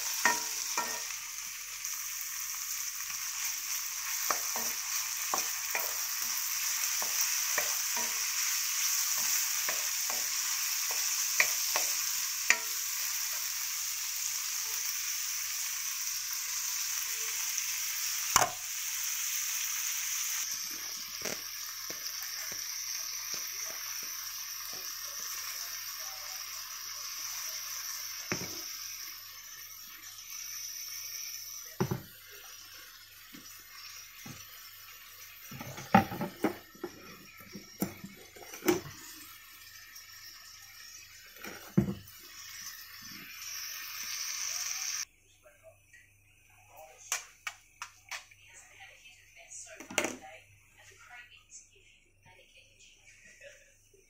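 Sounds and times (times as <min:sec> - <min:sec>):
spatula scraping wok: 0:00.0 - 0:13.8, 0:40.9 - 0:45.0
vegetables sizzling in oil: 0:00.0 - 0:45.1, 0:46.1 - 0:50.8.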